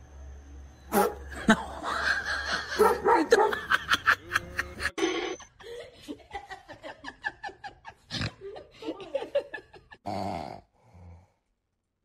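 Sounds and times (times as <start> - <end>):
woman laughing: 1.4 - 10.0.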